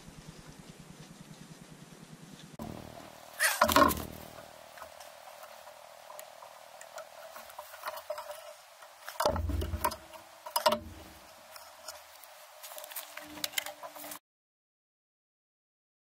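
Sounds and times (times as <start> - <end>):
tools clicking on copper pipes: 2.6 - 12.1
heavy bumps: 2.6 - 14.1.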